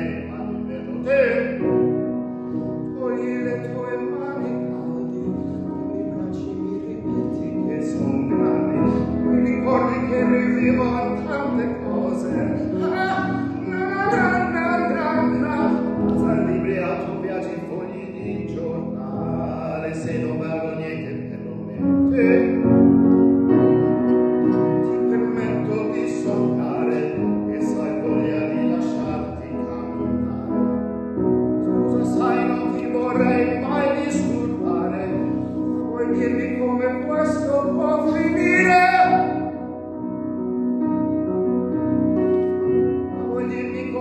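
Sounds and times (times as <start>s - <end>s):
man singing pop ballad: 0.0s - 1.8s, 2.9s - 22.8s, 24.5s - 30.8s, 31.6s - 39.7s, 43.2s - 44.0s
grand piano: 0.0s - 44.0s.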